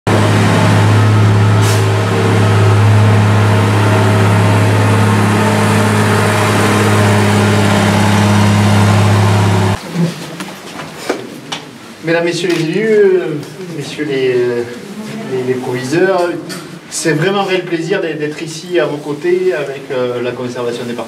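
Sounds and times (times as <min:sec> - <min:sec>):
loader engine running loudly: 0:00.1 - 0:09.8.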